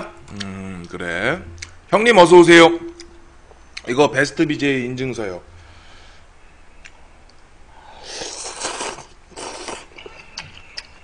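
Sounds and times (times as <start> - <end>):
person slurping noodles: 8.0 - 10.1.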